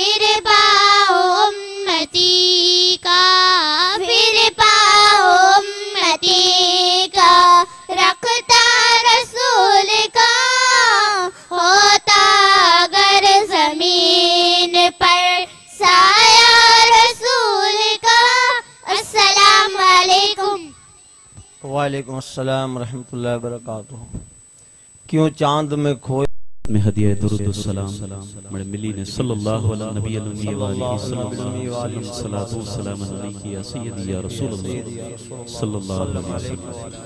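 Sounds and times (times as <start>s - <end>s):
girls singing unaccompanied: 0.0s - 20.7s.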